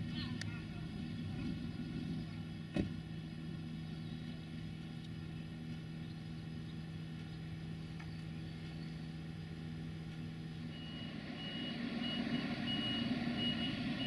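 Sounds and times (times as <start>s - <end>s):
diesel train engine idling: 0.0s - 14.0s.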